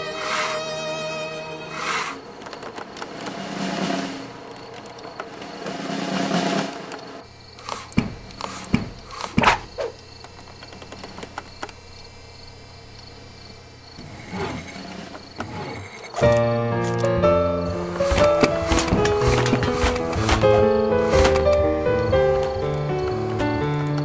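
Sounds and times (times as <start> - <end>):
sharp thuds: 17.8 - 22.6.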